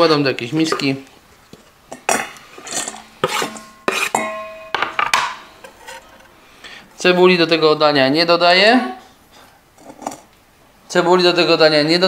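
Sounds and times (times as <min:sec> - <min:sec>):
knife scraping cutting board: 0:02.6 - 0:04.2, 0:05.6 - 0:06.3
bowl ringing: 0:03.5 - 0:05.0.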